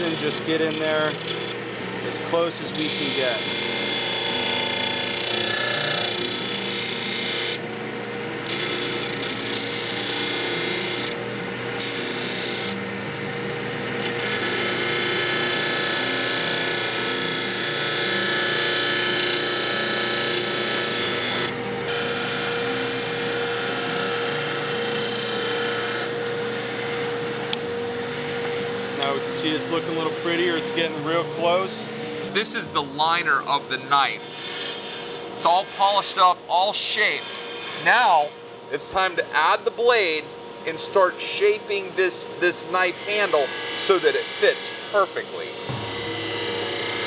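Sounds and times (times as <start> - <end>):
metal grinding on belt: 0.0 - 1.6, 2.4 - 7.6
belt grinder motor hum: 0.0 - 7.6, 8.4 - 11.2, 11.8 - 12.8, 13.9 - 31.6.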